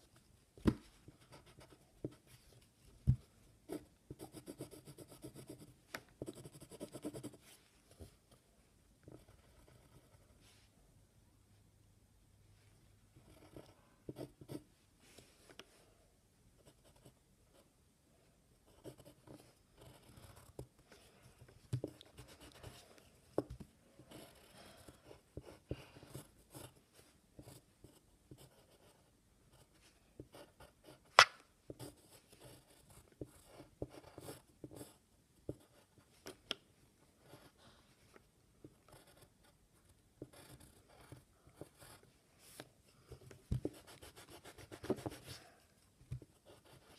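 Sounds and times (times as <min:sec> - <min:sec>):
pencil scratching on paper: 0:01.1 - 0:02.4, 0:03.7 - 0:08.0, 0:09.1 - 0:10.4, 0:18.7 - 0:20.7, 0:21.3 - 0:23.0, 0:24.0 - 0:26.8, 0:27.4 - 0:36.0, 0:37.2 - 0:37.6, 0:38.7 - 0:42.6, 0:43.5 - 0:45.6, 0:46.2 - 0:46.9.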